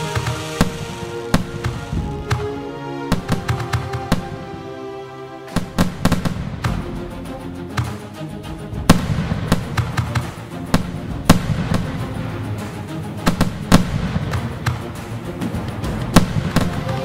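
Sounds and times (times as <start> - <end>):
fireworks bangs: 0.0 - 4.6, 5.5 - 7.0, 8.9 - 12.1, 13.3 - 14.8, 15.4 - 17.0
background music: 0.0 - 17.0.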